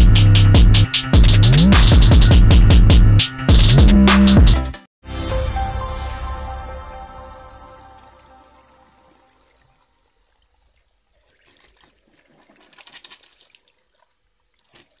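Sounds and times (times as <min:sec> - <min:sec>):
electronic music: 0:00.0 - 0:09.8
water splash and dripping effects: 0:07.8 - 0:15.0.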